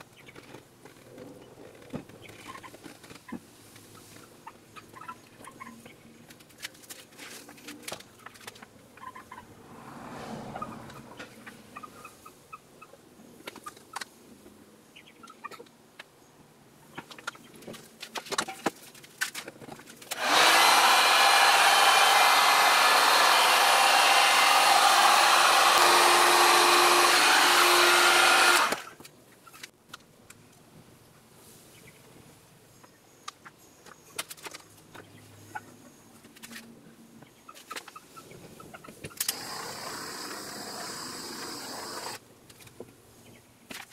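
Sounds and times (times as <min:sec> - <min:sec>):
hot-air blower rushing: 0:20.1 - 0:28.9, 0:39.3 - 0:42.2.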